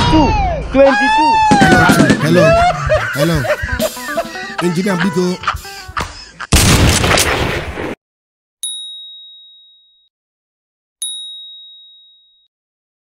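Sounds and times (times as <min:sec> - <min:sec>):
bell-like ding: 0:08.6 - 0:10.1, 0:11.0 - 0:12.5.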